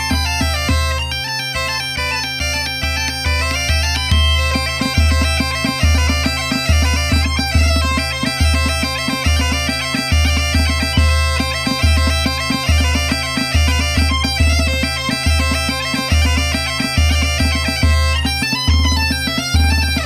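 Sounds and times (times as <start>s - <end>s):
bagpipes playing melody over drone: 0.0s - 20.0s.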